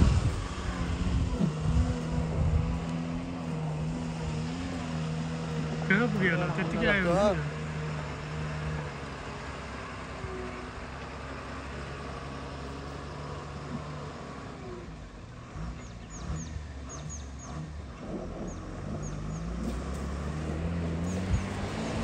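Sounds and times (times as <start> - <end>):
bus diesel engine under load: 0.0 - 22.0.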